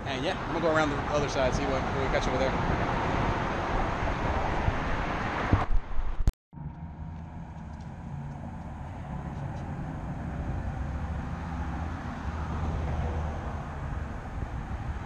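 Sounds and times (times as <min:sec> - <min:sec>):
traffic rumble on bridge overhead: 0:00.0 - 0:15.0.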